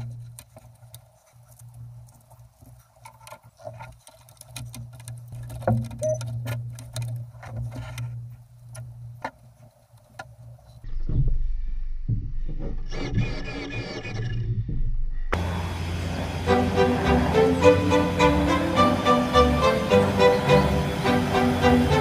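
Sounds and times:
small clicks and crackles: 0.0 - 10.8.

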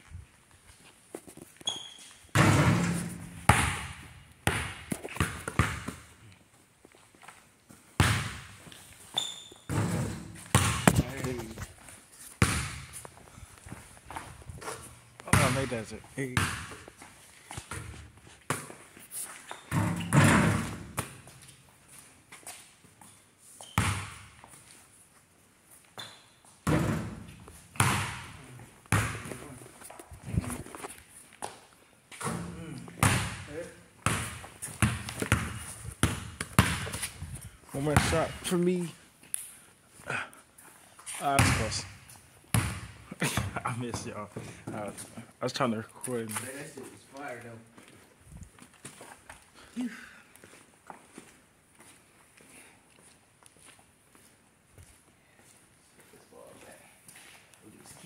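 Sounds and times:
basketball hitting backboard: 2.3 - 6.0, 8.0 - 8.5, 9.7 - 11.4, 12.4 - 12.9, 15.3 - 15.8, 19.7 - 21.2, 26.6 - 29.4, 32.2 - 37.0, 37.9 - 38.3, 41.4 - 41.8, 42.5 - 43.6
basketball bouncing on floor: 2.3 - 6.1, 8.0 - 8.6, 9.7 - 11.3, 12.4 - 12.9, 15.2 - 16.9, 19.7 - 21.4, 23.8 - 24.3, 26.6 - 29.4, 32.2 - 37.1, 37.9 - 38.4, 41.3 - 41.8, 42.5 - 44.1.

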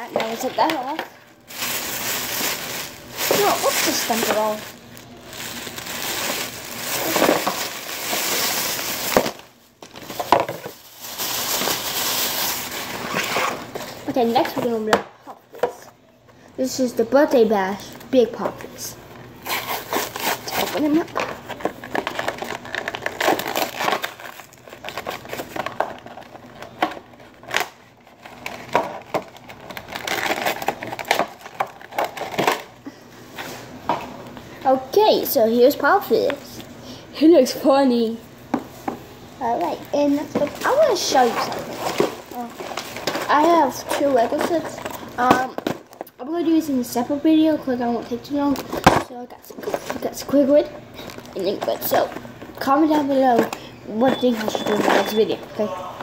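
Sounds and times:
plastic bag rustling: 0.0 - 14.9, 19.4 - 33.7, 38.7 - 46.1, 48.5 - 55.4
plastic packaging crinkling: 0.1 - 14.8, 19.4 - 32.8, 39.5 - 46.2, 48.5 - 55.4.

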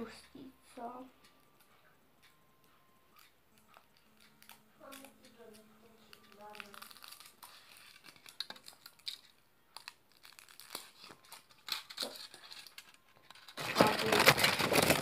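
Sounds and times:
foil wrapper rustling and crackling: 6.2 - 15.0
foil being crumpled: 6.3 - 9.2, 9.8 - 15.0.

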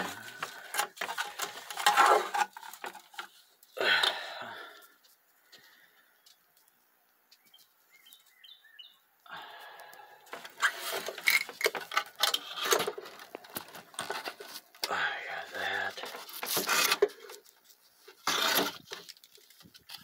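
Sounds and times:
faint bird chirps: 7.3 - 9.0
camera handling rustling and knocking: 10.3 - 14.9.

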